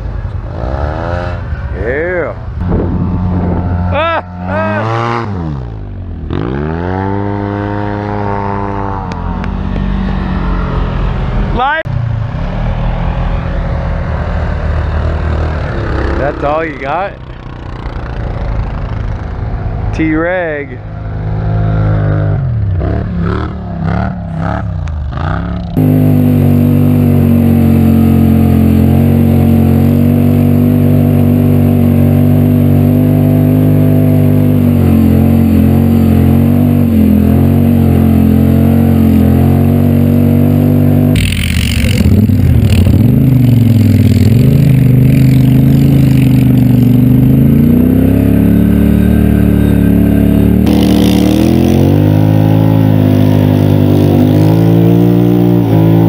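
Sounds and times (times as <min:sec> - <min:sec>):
quad bike engine running: 0:00.0 - 0:10.6, 0:14.4 - 0:19.8, 0:20.9 - 0:56.0
rush of noise: 0:00.0 - 0:22.2, 0:41.2 - 0:56.0.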